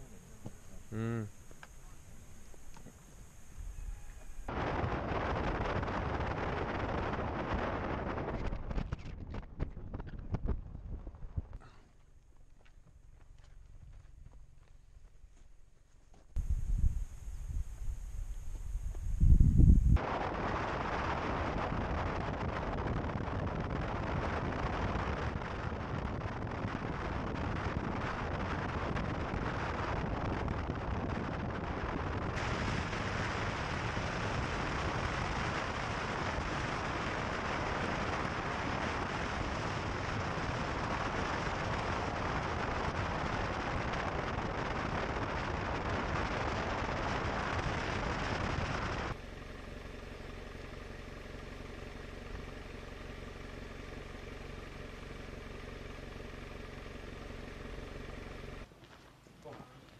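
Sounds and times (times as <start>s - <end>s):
road and wind noise: 0.0s - 11.7s, 16.4s - 59.2s
wind rumbling on microphone: 0.0s - 11.8s, 16.4s - 49.2s.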